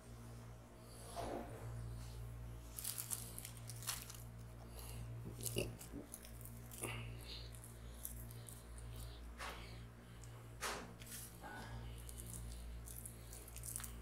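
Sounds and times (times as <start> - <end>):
steady low hum: 0.0 - 14.0
dry fruits rustling and clicking: 2.6 - 10.3, 11.0 - 14.0.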